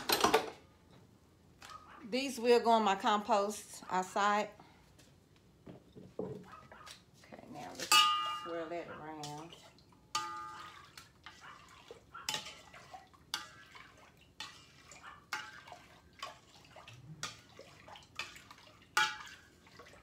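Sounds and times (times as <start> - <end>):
utensil knocking metal bowl: 7.9 - 8.7
liquid sloshing: 9.1 - 20.0.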